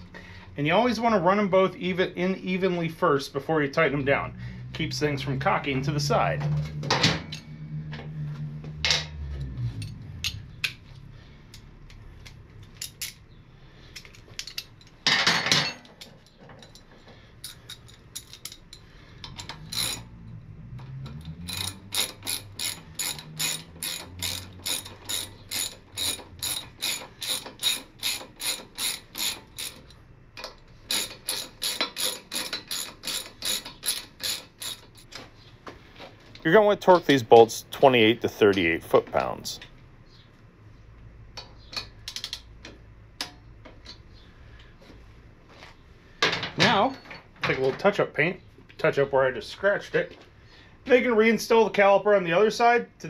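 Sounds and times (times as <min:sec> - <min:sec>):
socket ratchet clicking: 0:21.1 - 0:35.2.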